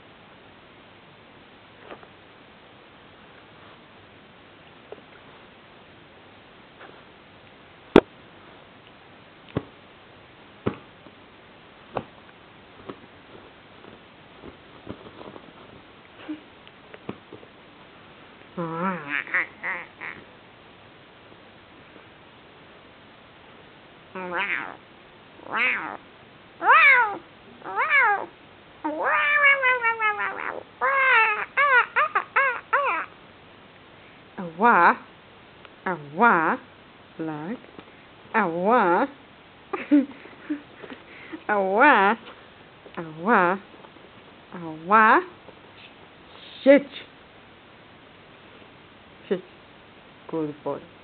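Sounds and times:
small dog yipping and whining: 0:28.9 - 0:33.1.

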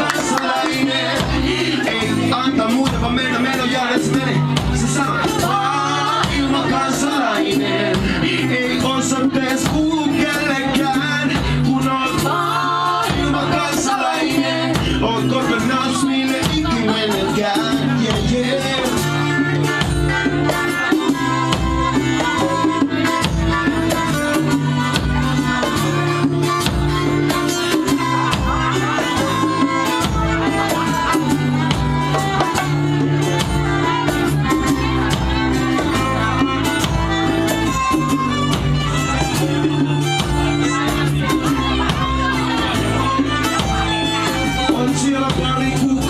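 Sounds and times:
live band playing: 0:00.0 - 0:46.0
strummed acoustic guitar: 0:00.0 - 0:46.0
bowed fiddle: 0:19.0 - 0:45.8.

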